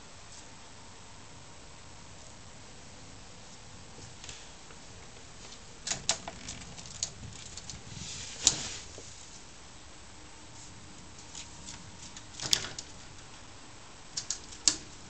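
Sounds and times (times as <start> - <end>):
cats tapping a mesh screen: 5.8 - 7.8, 11.2 - 13.2, 14.1 - 15.0.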